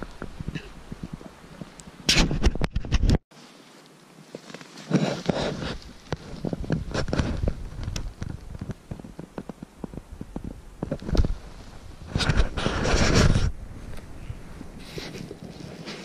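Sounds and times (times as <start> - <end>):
branches and clothing rustling: 0.0 - 16.0
twigs snapping and crackling: 3.8 - 14.1.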